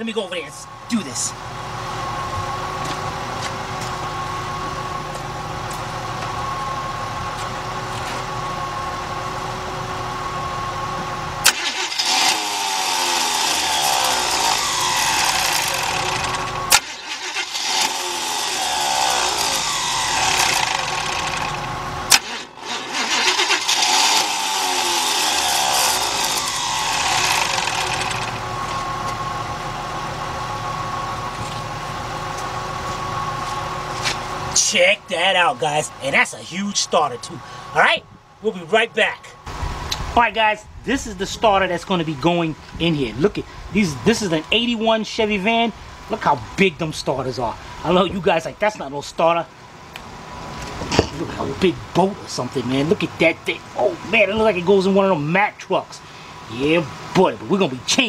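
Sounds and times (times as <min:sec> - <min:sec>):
starter motor cranking engine: 0:11.4 - 0:28.9.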